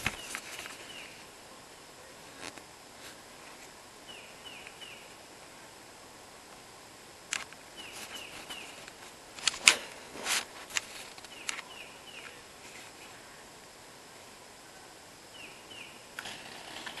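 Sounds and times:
bird chirping: 0:00.0 - 0:01.2, 0:04.0 - 0:05.2, 0:07.7 - 0:08.8, 0:11.2 - 0:13.4, 0:15.3 - 0:16.1.

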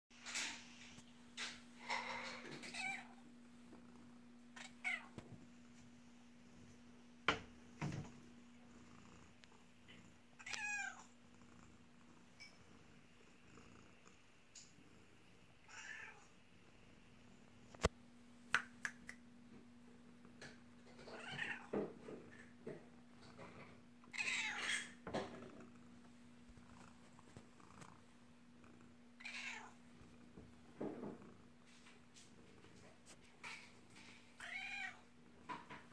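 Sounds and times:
cat meowing: 0:10.4 - 0:11.0, 0:29.2 - 0:29.8.

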